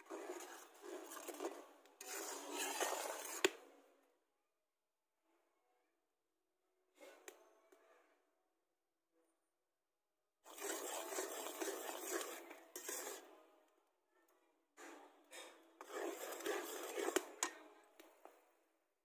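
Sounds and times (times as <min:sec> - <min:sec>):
metal spatula scraping a pot: 0:00.0 - 0:03.6, 0:10.5 - 0:13.4, 0:14.8 - 0:17.9.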